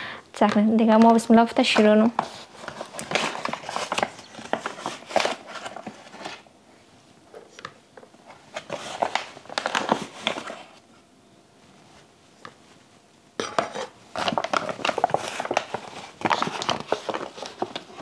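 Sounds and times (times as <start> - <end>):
packaging crinkling and rustling: 0.9 - 6.5, 7.3 - 10.8, 13.4 - 18.0.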